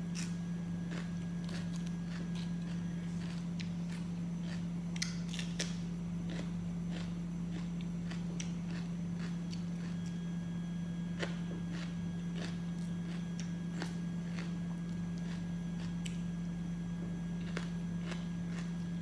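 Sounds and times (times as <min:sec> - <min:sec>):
steady low hum: 0:00.0 - 0:19.0
bell pepper snapping and crunching: 0:04.9 - 0:08.6.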